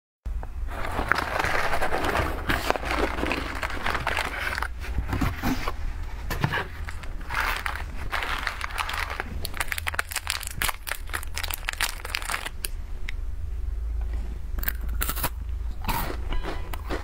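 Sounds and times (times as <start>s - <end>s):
steady low hum: 0.3s - 17.0s
plastic wrappers crinkling: 0.7s - 5.7s, 6.5s - 12.8s.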